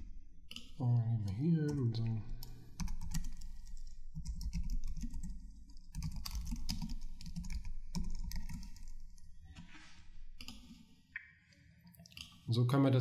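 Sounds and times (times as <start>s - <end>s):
typing on a computer keyboard: 0.5s - 9.3s, 10.4s - 10.8s.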